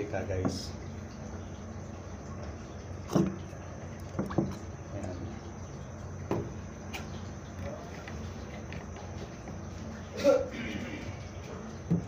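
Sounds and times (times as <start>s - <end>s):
oil dripping into pot: 0.0s - 12.0s
steady low hum: 0.0s - 12.0s
small knocks: 3.1s - 4.6s, 6.3s - 9.6s.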